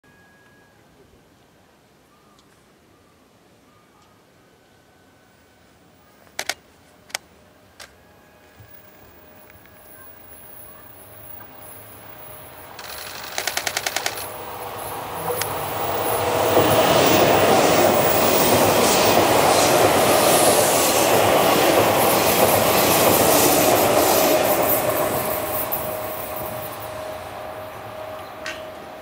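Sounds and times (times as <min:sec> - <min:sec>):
electric train passing: 0:00.1 - 0:29.0
rapid even clicks: 0:12.8 - 0:14.3.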